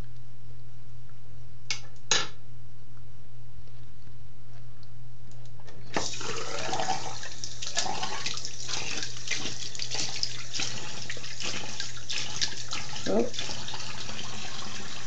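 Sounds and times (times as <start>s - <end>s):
tap water splashing over hand: 6.0s - 15.0s.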